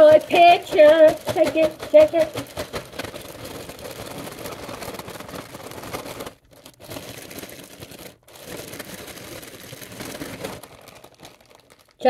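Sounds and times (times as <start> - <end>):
radish slices tumbling: 0.0 - 7.5
plastic bag crinkling while shaken: 0.0 - 12.0.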